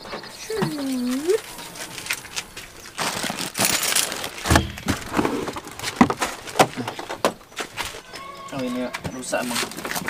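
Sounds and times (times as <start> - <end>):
suitcases knocking and clattering: 2.0 - 8.2.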